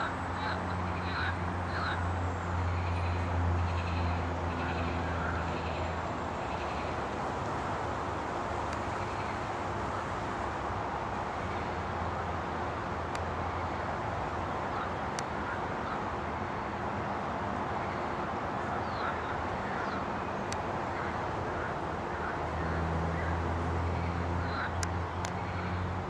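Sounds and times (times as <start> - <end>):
distant road traffic rumble: 0.0 - 26.0.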